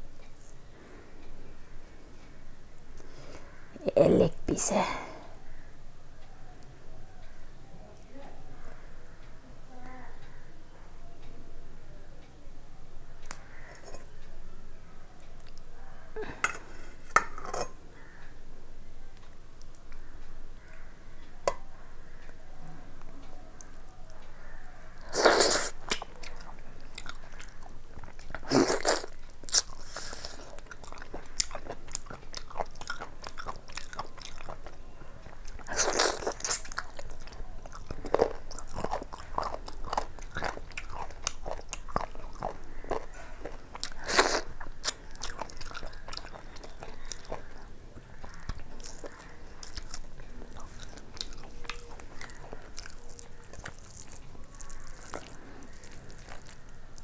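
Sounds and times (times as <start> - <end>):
person chewing food: 23.5 - 57.0
crunching bites: 35.5 - 57.0.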